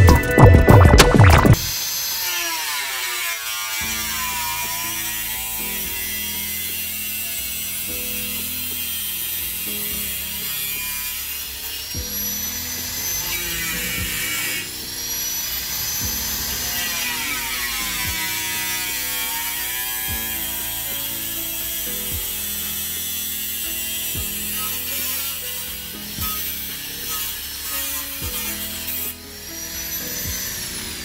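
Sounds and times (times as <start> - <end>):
angle grinder cutting metal: 0.0 - 31.0.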